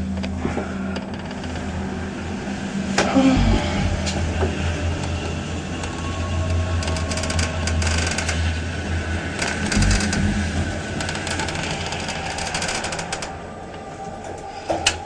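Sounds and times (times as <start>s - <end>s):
elevator low hum: 0.0s - 15.0s
mechanical rattling and clicking: 9.4s - 13.3s.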